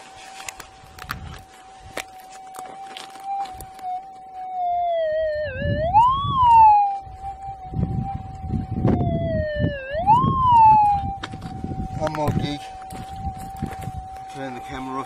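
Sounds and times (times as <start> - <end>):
pick scraping stony ground: 0.0 - 4.4
high wailing detector signal: 0.1 - 15.0.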